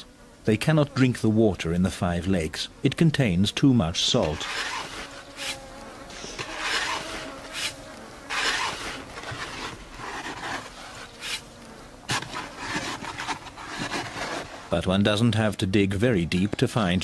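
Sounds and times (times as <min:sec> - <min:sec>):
shovel scraping in sand: 0:04.2 - 0:11.5, 0:12.1 - 0:14.7.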